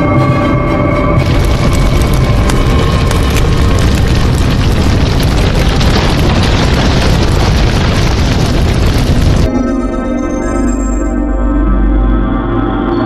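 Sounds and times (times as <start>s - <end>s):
explosion-like sound effect: 1.2s - 9.5s.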